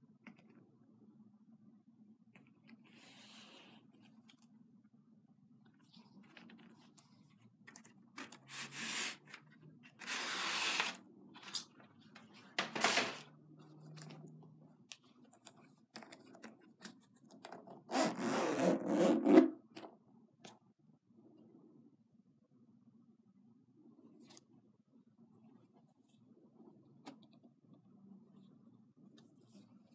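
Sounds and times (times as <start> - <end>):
zipper pulled open: 17.9 - 19.6.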